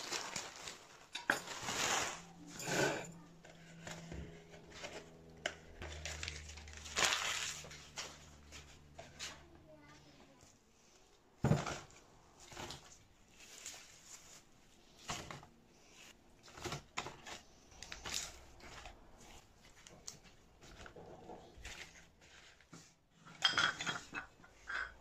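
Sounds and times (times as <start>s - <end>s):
wicker basket rustling: 0.0s - 2.5s, 4.6s - 9.4s, 12.4s - 22.9s.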